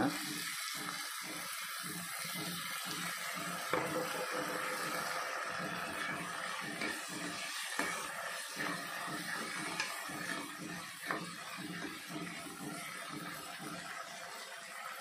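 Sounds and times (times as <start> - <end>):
steaming hiss: 0.0 - 15.0
metal ladle scraping a pan: 3.4 - 14.0.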